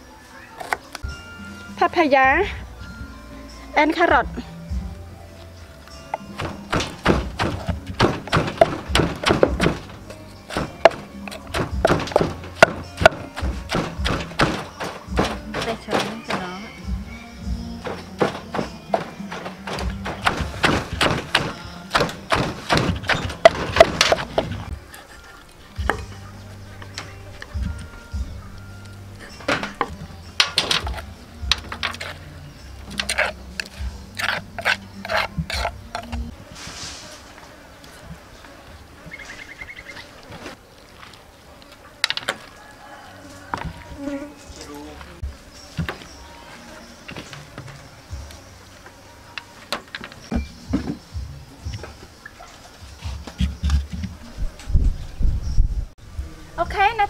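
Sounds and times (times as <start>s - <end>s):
background music: 0.0s - 40.7s, 41.3s - 57.0s
pestle pounding in mortar: 6.4s - 16.5s, 17.9s - 24.7s, 33.0s - 36.2s
spoon scraping mortar: 32.8s - 37.2s.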